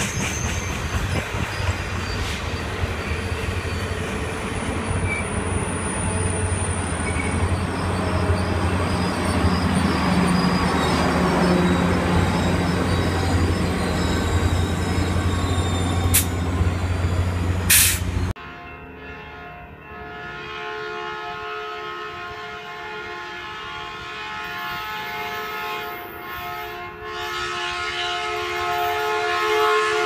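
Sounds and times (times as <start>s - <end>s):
diesel locomotive engine drone: 0.0s - 18.5s
train coaches rolling past: 0.0s - 20.6s.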